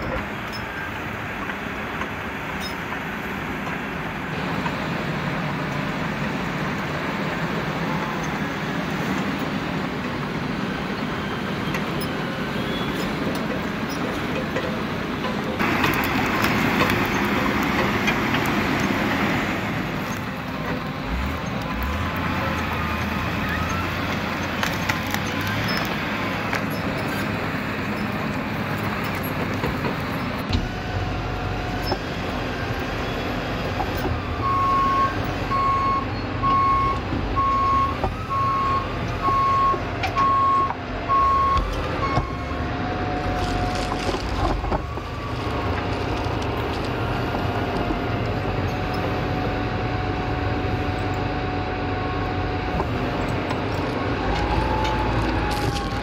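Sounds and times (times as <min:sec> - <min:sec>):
diesel engine running: 0:00.0 - 0:56.0
backup alarm beeping: 0:34.4 - 0:42.6.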